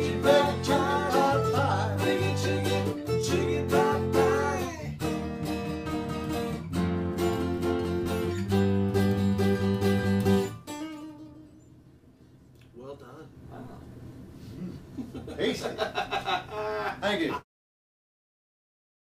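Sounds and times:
person singing: 0:00.0 - 0:05.0
acoustic guitar strumming: 0:00.0 - 0:11.7.

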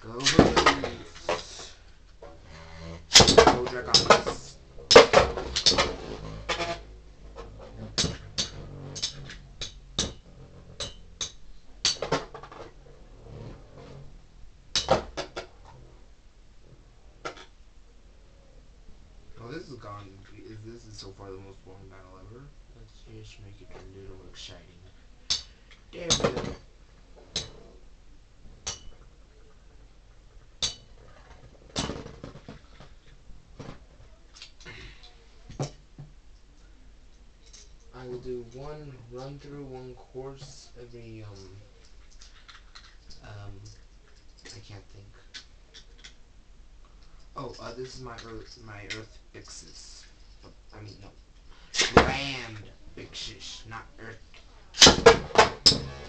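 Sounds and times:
spinning tops hitting: 0:03.1 - 0:06.7, 0:07.4 - 0:12.6, 0:14.7 - 0:15.5.

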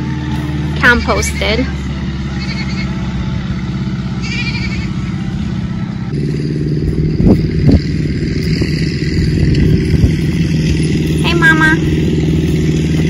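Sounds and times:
small engine running: 0:00.0 - 0:13.0
goat bleating: 0:02.3 - 0:03.0, 0:04.2 - 0:05.1.

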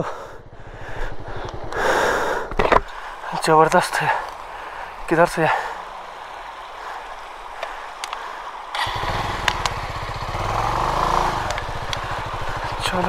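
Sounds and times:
motorcycle engine revving: 0:00.0 - 0:02.9, 0:08.7 - 0:13.0
sharp clicks: 0:08.8 - 0:09.8, 0:11.4 - 0:12.1.

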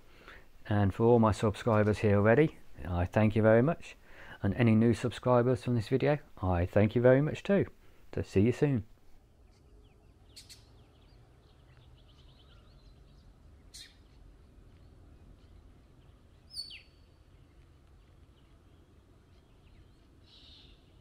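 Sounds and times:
birds chirping: 0:00.1 - 0:21.0.

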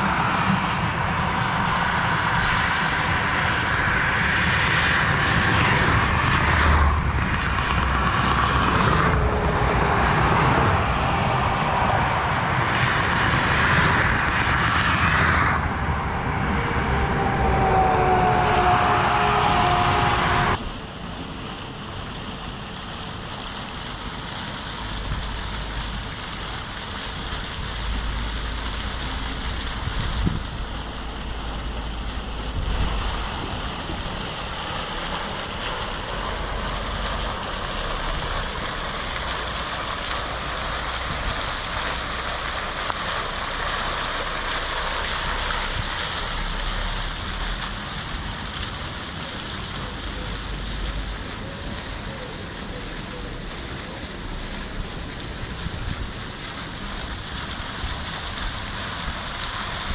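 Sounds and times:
fountain jets splashing: 0:00.0 - 0:15.3, 0:17.5 - 0:59.9
wind buffeting microphone: 0:00.0 - 0:21.2, 0:24.8 - 0:43.7.

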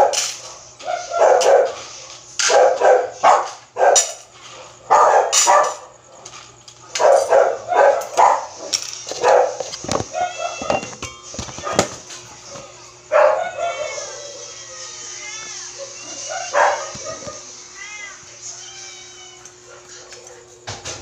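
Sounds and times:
dogs barking: 0:00.0 - 0:10.9, 0:11.5 - 0:12.0, 0:12.9 - 0:14.6, 0:15.7 - 0:17.5.

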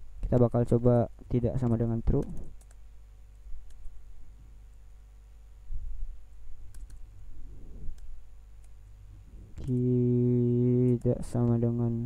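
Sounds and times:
low electrical hum: 0:00.0 - 0:12.0
keyboard keystrokes: 0:06.7 - 0:07.0.

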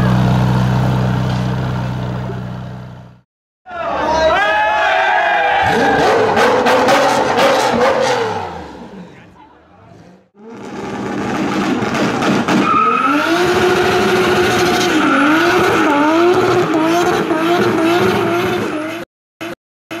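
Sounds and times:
car engine at high revs: 0:05.7 - 0:08.9, 0:10.3 - 0:20.0.

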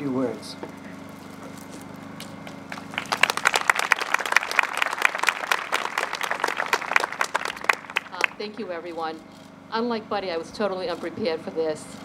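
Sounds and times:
audience clapping: 0:02.7 - 0:08.4.

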